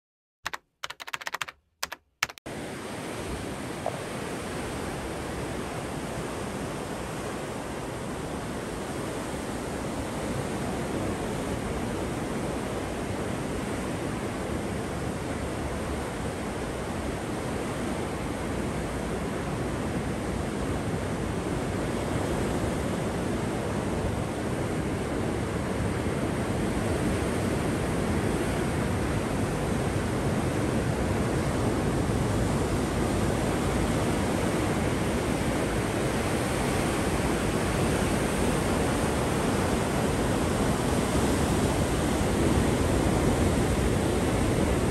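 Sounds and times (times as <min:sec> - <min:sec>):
typing key clicks: 0:00.5 - 0:02.4.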